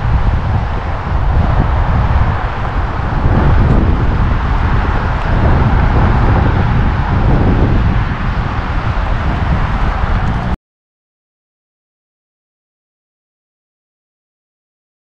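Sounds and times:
wind blowing across microphone: 0.0 - 10.6.

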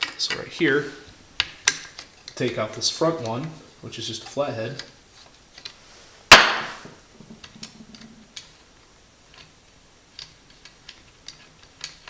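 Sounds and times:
sharp knock: 6.3 - 6.9.

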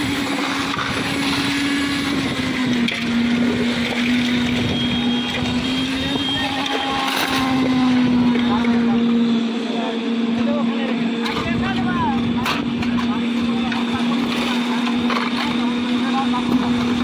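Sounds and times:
concrete churning in drum: 0.0 - 9.4
concrete mixer engine drone: 0.0 - 17.0.

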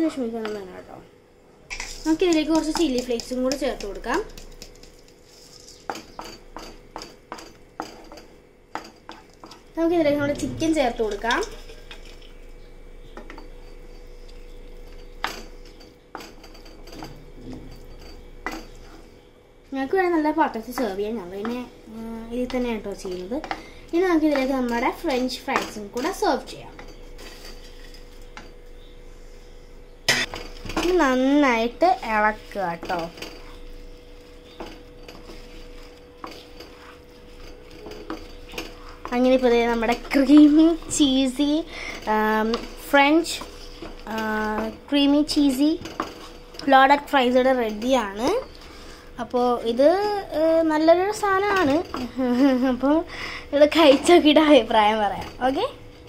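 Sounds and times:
spatula scraping pan: 30.1 - 49.1
spatula stirring in sauce: 31.6 - 46.7.

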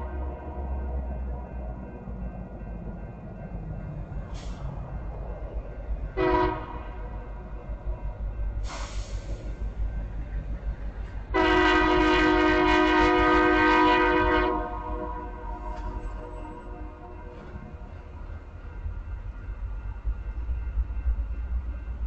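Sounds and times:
locomotive air horn blasts: 6.2 - 7.1, 11.3 - 17.2.

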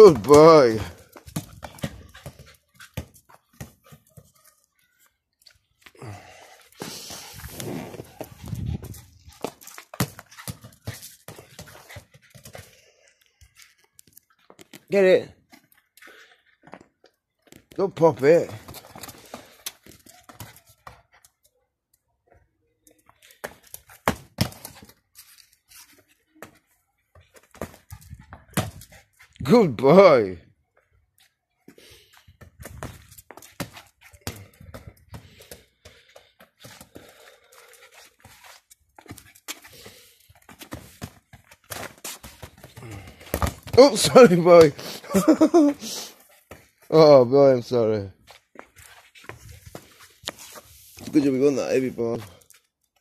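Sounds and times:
plastic ball scuffing on stone: 6.7 - 12.6, 38.0 - 45.0, 48.2 - 52.5.

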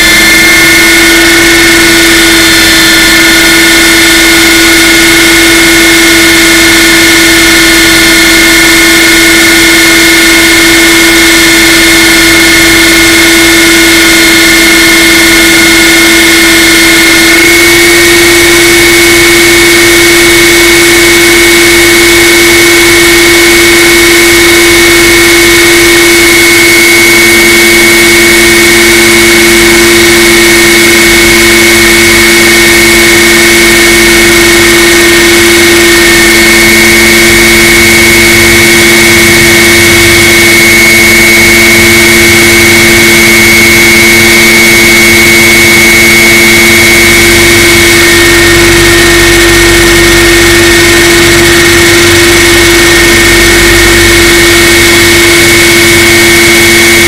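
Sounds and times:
motor and gear whine: 0.0 - 57.0
rotor and wind noise: 0.0 - 57.0.

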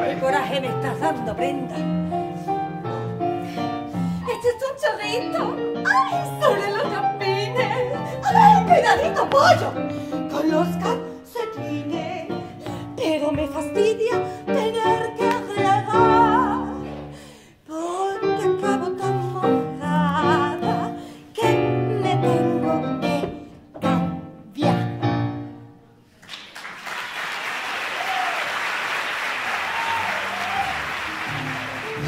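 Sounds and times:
piano accompaniment: 0.0 - 26.1, 29.8 - 32.0
woman singing with vibrato: 4.2 - 17.0, 17.6 - 25.5
audience applauding: 26.2 - 32.0
audience shouts: 27.9 - 28.6, 29.4 - 32.0.

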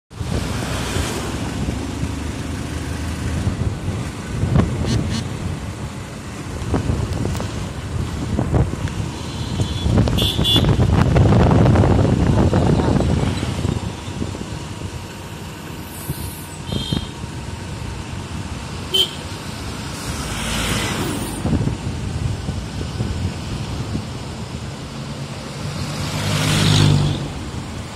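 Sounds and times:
heavy lorry passing: 0.1 - 27.9
motorbike engine and road rumble: 0.1 - 27.9.

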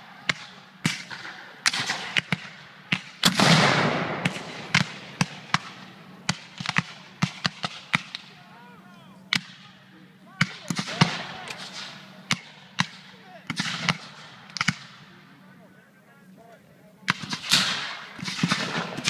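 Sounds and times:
cannon blast with rumbling tail: 3.2 - 8.2, 17.1 - 19.0.

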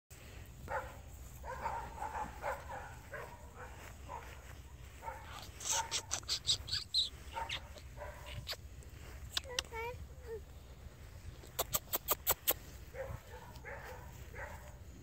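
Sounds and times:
puppy yipping: 5.1 - 8.6.

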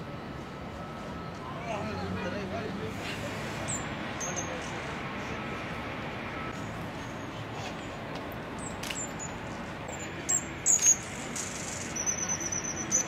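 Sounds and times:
hummingbird chip calls: 9.9 - 13.0.

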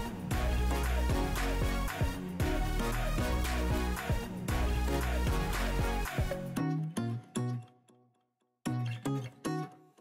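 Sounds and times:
guitar chords: 0.0 - 10.0.

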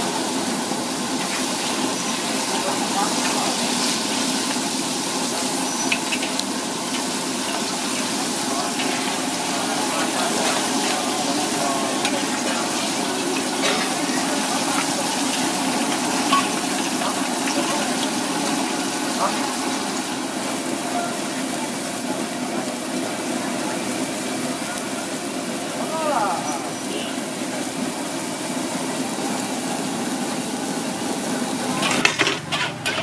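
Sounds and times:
water boiling hard in a wok: 0.0 - 33.0
background voices: 1.1 - 4.6, 6.5 - 27.9.

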